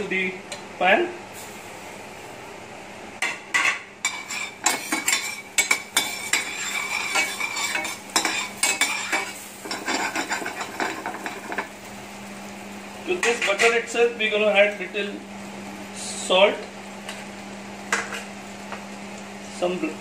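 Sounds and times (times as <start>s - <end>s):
butter sizzling: 3.4s - 20.0s
metal spoon scraping frying pan: 3.6s - 11.7s.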